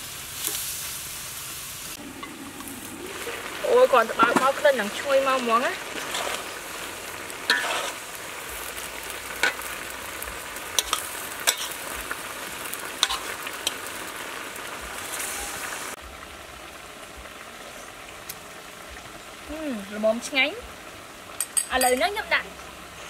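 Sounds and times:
food sizzling in a wok: 0.0 - 23.0
metal utensils scraping a pan: 3.9 - 6.6, 7.5 - 8.0, 9.3 - 9.7, 10.7 - 11.8, 13.0 - 13.9.

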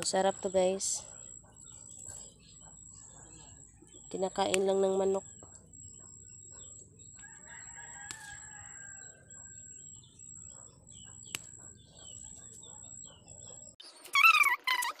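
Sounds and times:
rooster crowing: 7.2 - 9.6.

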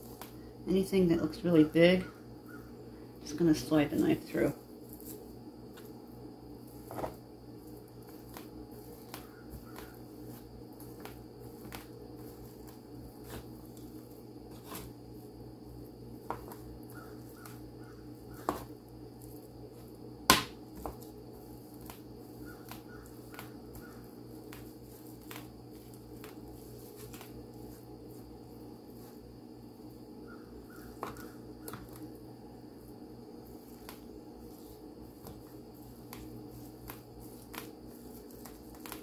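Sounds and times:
steady background hum: 0.0 - 39.0
knife chopping on plastic board: 18.4 - 18.7, 20.3 - 21.0.

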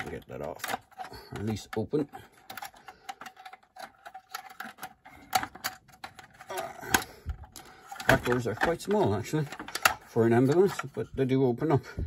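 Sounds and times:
clicks of plastic toy doors: 0.0 - 10.9.

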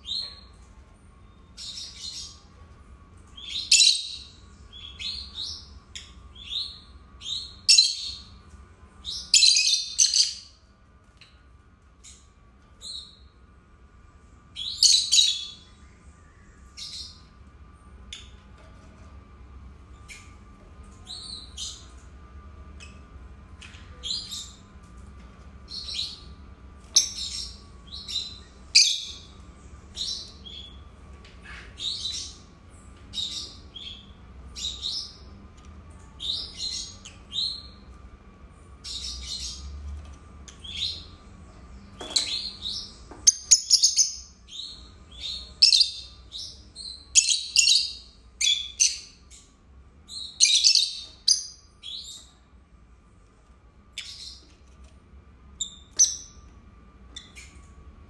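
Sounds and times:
lovebirds chirping: 40.4 - 52.4.

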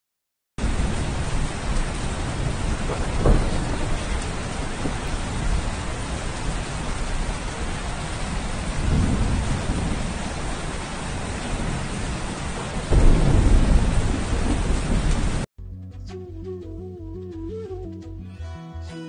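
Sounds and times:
rain falling: 0.6 - 15.5
thunder rolling: 0.6 - 15.5.

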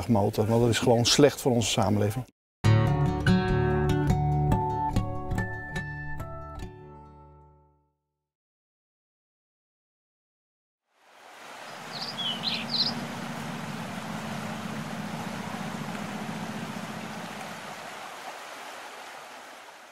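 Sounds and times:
stream rushing over rocks: 11.0 - 19.9
bird chirps: 11.7 - 13.4.

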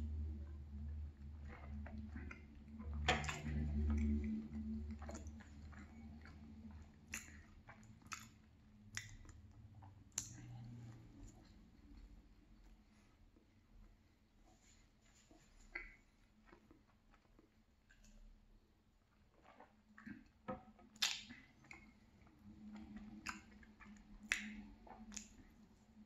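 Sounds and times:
swallowing gulps: 0.0 - 12.4, 19.4 - 26.0
chewing moist cake: 0.0 - 14.4, 15.4 - 26.0
wet mouth clicks: 1.4 - 12.1, 21.0 - 25.6.

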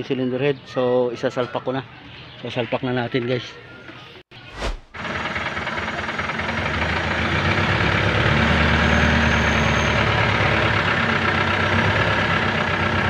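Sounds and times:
engine humming: 4.6 - 13.0.

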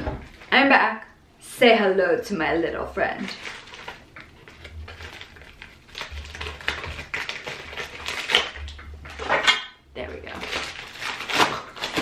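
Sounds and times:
plastic crinkling: 3.1 - 12.0
scissors snipping plastic: 3.3 - 9.7, 10.4 - 12.0.

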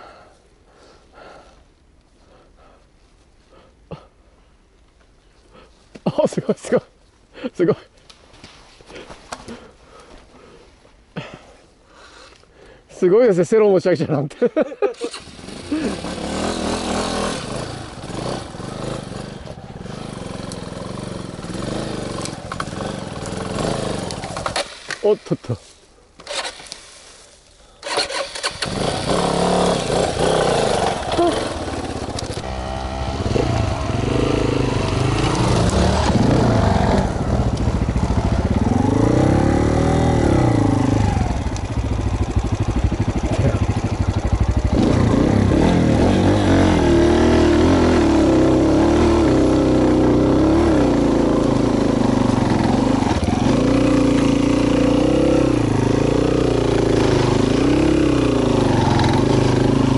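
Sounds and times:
motorcycle engine revving: 15.0 - 25.0, 27.8 - 59.9.

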